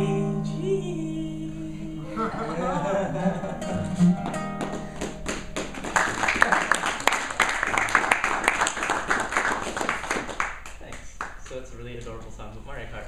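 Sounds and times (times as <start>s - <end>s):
acoustic guitar chord ringing: 0.0s - 5.7s
audience clapping: 4.2s - 11.6s.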